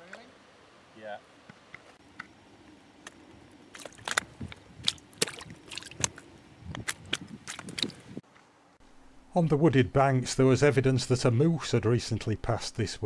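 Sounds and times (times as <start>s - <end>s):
fish slapping and splashing: 3.7s - 8.2s.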